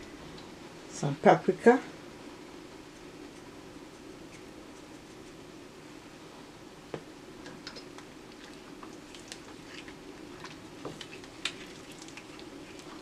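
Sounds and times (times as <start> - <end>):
faint steady hum: 0.0 - 13.0
spoon stirring thick sauce: 7.9 - 13.0.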